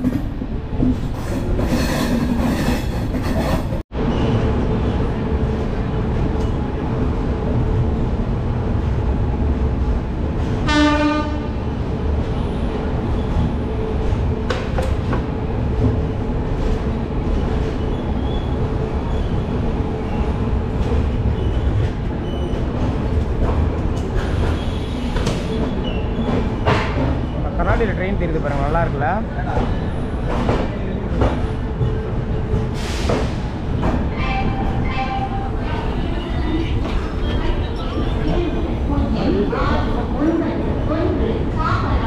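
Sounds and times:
train wheels rumbling on rails: 0:00.0 - 0:42.0
train horn blast: 0:10.6 - 0:11.6.

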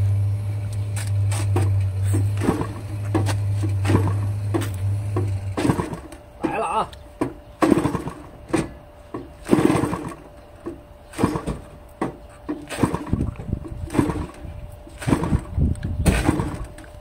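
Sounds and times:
small gasoline engine firing in bursts: 0:01.5 - 0:06.8, 0:07.5 - 0:10.4, 0:11.0 - 0:11.8, 0:12.6 - 0:17.0.

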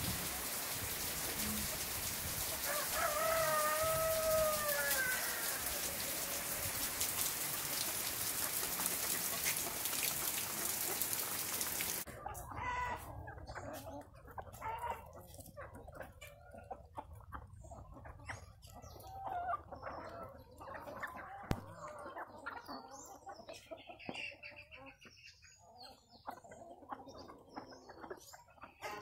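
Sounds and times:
steady rain on trees: 0:00.0 - 0:12.1
rooster crowing: 0:02.6 - 0:06.3
chicken clucking: 0:12.1 - 0:29.0.

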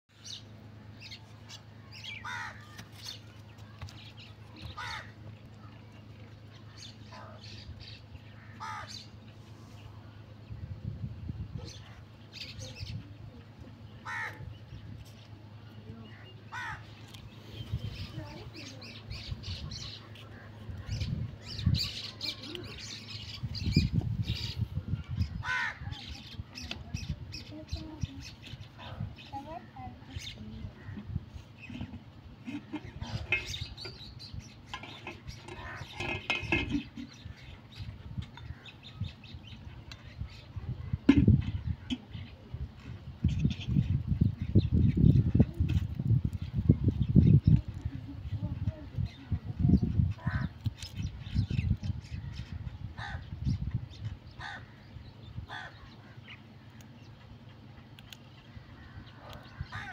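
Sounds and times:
crow cawing: 0:02.2 - 0:02.7, 0:04.8 - 0:05.2, 0:08.4 - 0:09.0, 0:14.0 - 0:14.5, 0:16.5 - 0:16.9, 0:25.4 - 0:26.0, 0:53.0 - 0:53.2, 0:54.4 - 0:54.8, 0:55.5 - 0:56.1, 0:59.6 - 0:59.9
metal ladle scraping pot: 0:31.6 - 0:37.2.

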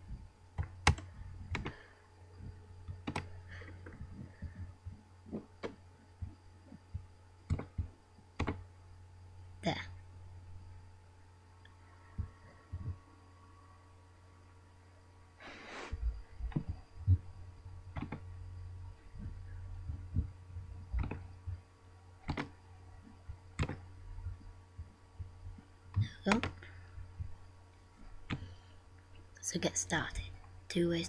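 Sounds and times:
low electrical hum: 0:00.0 - 0:31.0
computer mouse clicks: 0:00.6 - 0:01.8, 0:02.9 - 0:03.3, 0:07.5 - 0:08.6, 0:17.9 - 0:18.2, 0:21.0 - 0:21.3, 0:22.2 - 0:22.6, 0:23.6 - 0:23.8, 0:26.3 - 0:26.7.

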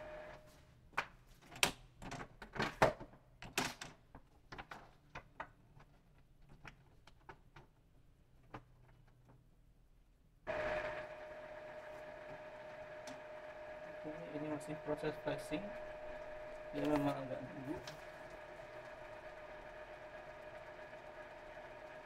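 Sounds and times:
paper rustling into printer feeder: 0:16.0 - 0:18.9.

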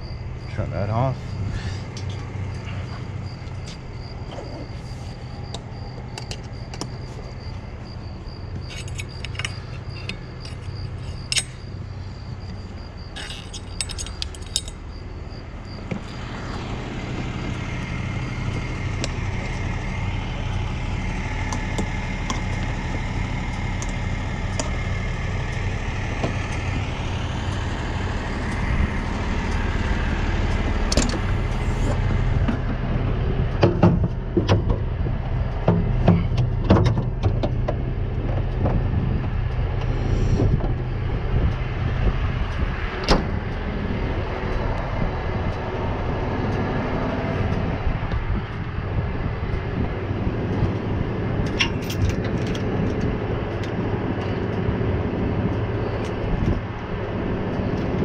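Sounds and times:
truck engine idling: 0:00.0 - 0:58.0
metallic clinks and jangles: 0:08.6 - 0:11.8, 0:13.1 - 0:14.9, 0:51.5 - 0:52.6.

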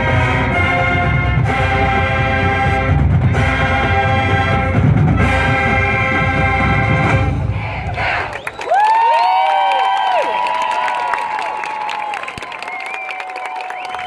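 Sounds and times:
brass section holding chords: 0:00.0 - 0:07.6.

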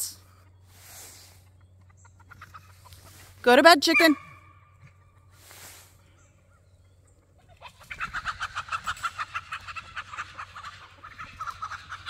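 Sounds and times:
chickens cackling: 0:00.0 - 0:12.0
soft rustle: 0:02.6 - 0:03.5, 0:05.3 - 0:06.0.

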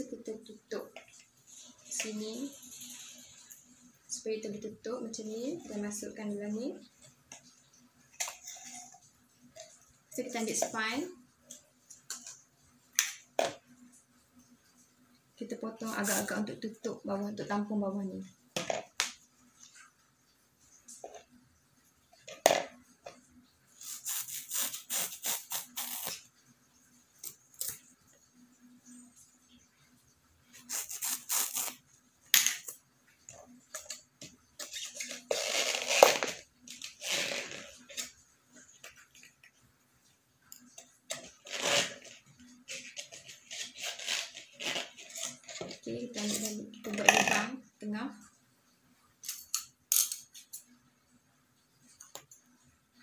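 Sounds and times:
plastic bottle crinkling: 0:34.6 - 0:38.2, 0:41.1 - 0:47.0.

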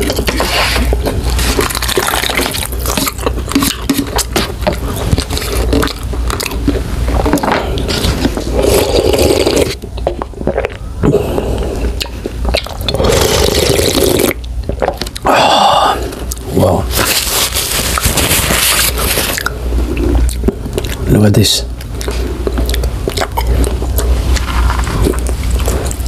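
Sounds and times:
noodles slurped and chewed: 0:00.0 - 0:15.3
broth slurped from cup: 0:07.4 - 0:09.8, 0:12.6 - 0:15.0.

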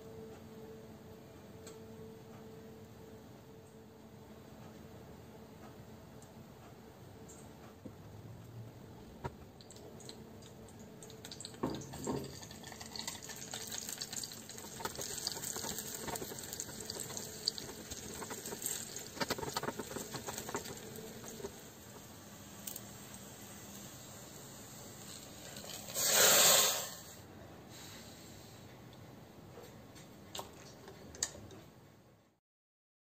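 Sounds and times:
food sizzling in hot oil: 0:11.0 - 0:27.2.

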